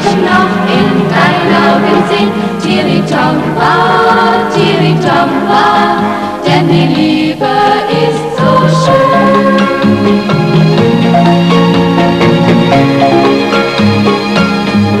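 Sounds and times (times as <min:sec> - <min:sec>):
women singing together: 0:00.0 - 0:09.8
instrumental accompaniment: 0:00.0 - 0:15.0.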